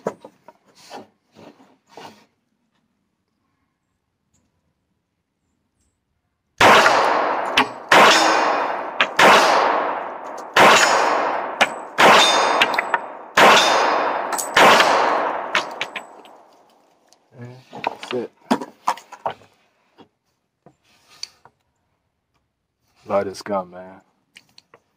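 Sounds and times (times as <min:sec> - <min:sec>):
pistol shots with echo: 0:06.6 - 0:16.4.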